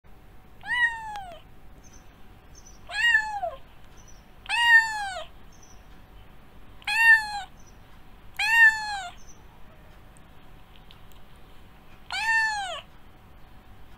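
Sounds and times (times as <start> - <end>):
cat meowing: 0.6 - 1.5, 2.8 - 3.6, 4.4 - 5.3, 6.8 - 7.5, 8.3 - 9.2, 12.0 - 12.9.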